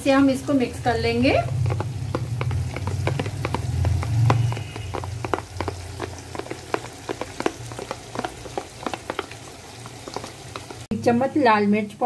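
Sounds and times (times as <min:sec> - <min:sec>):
low rumble: 0:00.5 - 0:04.6
spoon scraping plastic bowl: 0:01.4 - 0:10.8.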